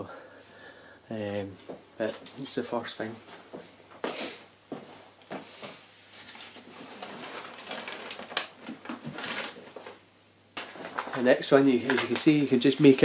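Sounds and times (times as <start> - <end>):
packing paper rustling: 6.1 - 10.0, 10.6 - 13.0.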